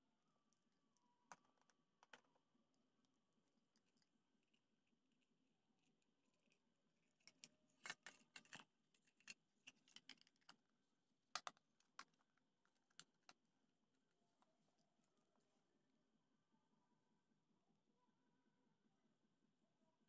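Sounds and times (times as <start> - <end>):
plastic parts clicking and rattling: 6.4 - 13.4.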